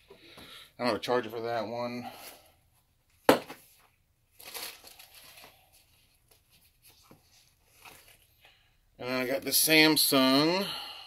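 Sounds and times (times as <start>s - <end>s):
items rustling: 3.1s - 8.5s.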